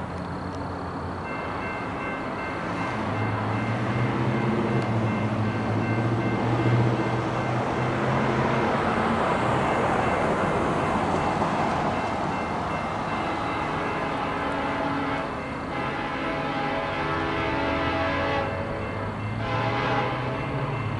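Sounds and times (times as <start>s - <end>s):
diesel locomotive rumble: 0.0s - 20.9s
steady wash of train noise: 0.0s - 20.9s
faint train horn chord: 13.5s - 20.9s.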